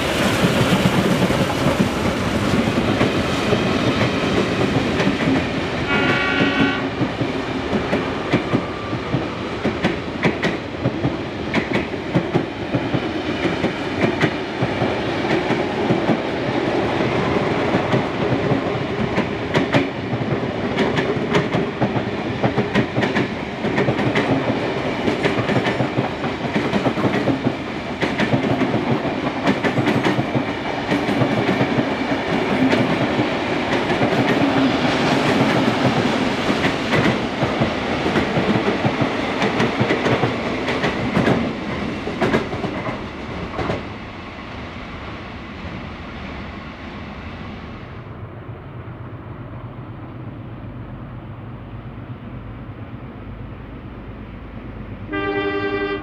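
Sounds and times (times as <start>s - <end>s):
train wheels clicking over rail joints: 0.0s - 43.9s.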